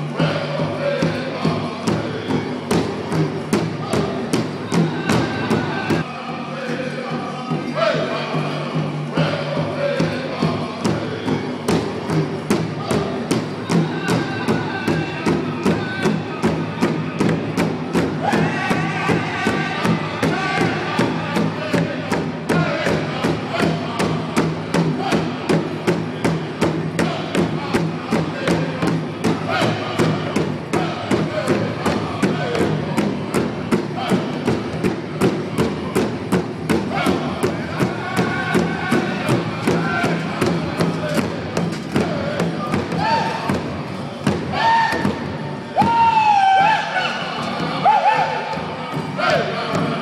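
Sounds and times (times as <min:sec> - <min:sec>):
chorus of singers: 0:00.0 - 0:02.9, 0:03.7 - 0:12.2, 0:18.1 - 0:26.1, 0:27.0 - 0:34.6, 0:36.8 - 0:45.1, 0:46.2 - 0:50.0
large drum steady beat: 0:00.0 - 0:46.4, 0:47.5 - 0:50.0.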